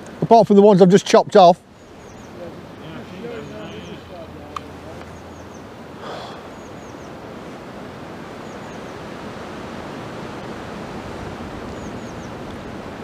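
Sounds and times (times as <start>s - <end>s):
bird chirping: 1.6s - 7.3s, 8.3s - 9.1s, 11.6s - 12.5s
wind rushing over microphone: 1.6s - 13.0s.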